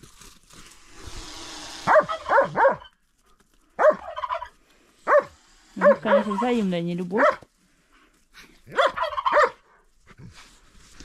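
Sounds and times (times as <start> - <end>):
dog barking: 1.9 - 2.9, 3.8 - 4.4, 5.0 - 6.5, 7.2 - 7.4, 8.7 - 9.7.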